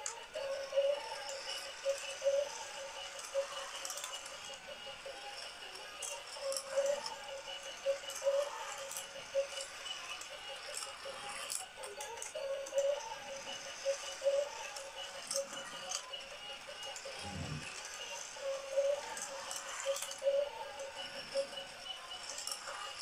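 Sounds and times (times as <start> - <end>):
toy cars rattling on plastic track: 0.0 - 23.0
pulsing wavering tone: 17.0 - 17.7.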